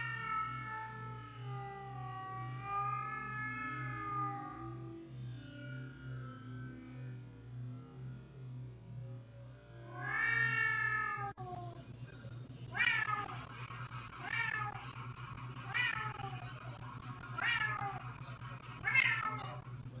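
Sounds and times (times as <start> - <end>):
cat yowling: 0.0 - 5.1, 9.9 - 11.6, 12.7 - 13.4, 14.2 - 14.8, 17.4 - 18.1, 18.8 - 19.4
steady low hum: 0.0 - 20.0.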